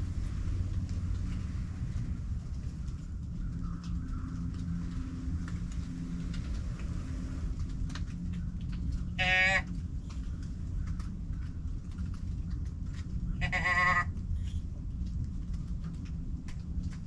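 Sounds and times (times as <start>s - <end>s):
deer bleat call: 9.2s - 9.7s, 13.4s - 14.1s.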